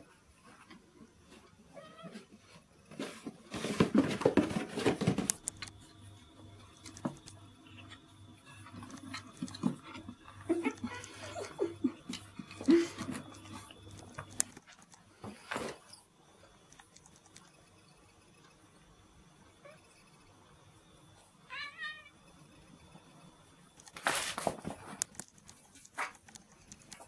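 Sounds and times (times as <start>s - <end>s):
cats play-fighting on carpet: 0.0s - 17.7s, 23.7s - 27.0s.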